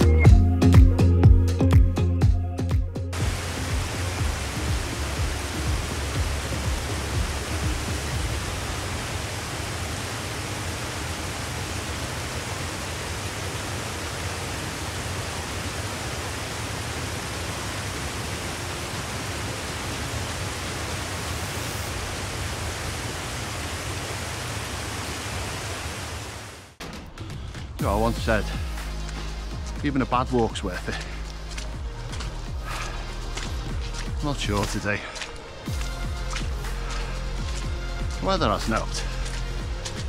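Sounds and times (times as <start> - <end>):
small waterfall rushing: 3.2 - 26.8.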